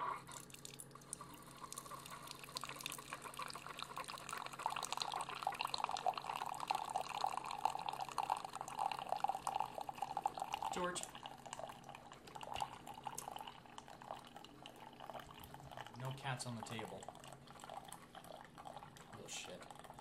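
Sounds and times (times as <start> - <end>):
coffee trickling into a mug: 0.3 - 20.0.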